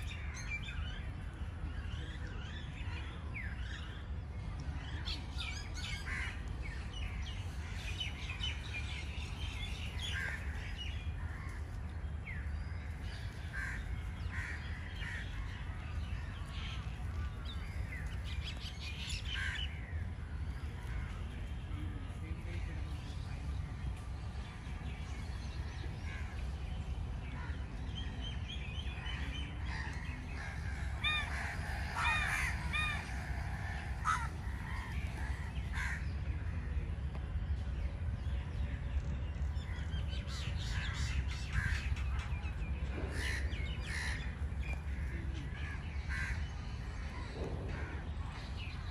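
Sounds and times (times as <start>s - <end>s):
steady low rumble: 0.0s - 48.9s
crows cawing: 13.4s - 15.7s, 19.3s - 19.7s, 29.6s - 36.2s, 43.1s - 45.1s, 46.0s - 46.4s.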